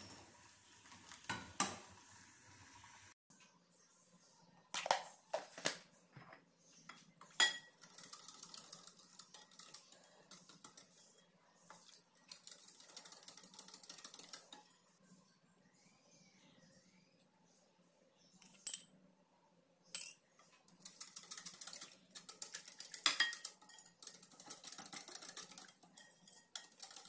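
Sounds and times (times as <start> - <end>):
whisk clinking against glass bowl: 20.7 - 27.0.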